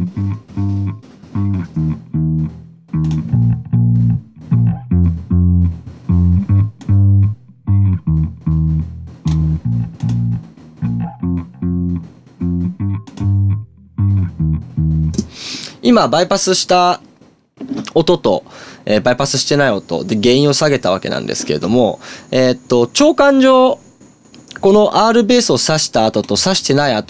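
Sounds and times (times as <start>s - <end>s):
solo electric bass line: 0.0s - 15.3s.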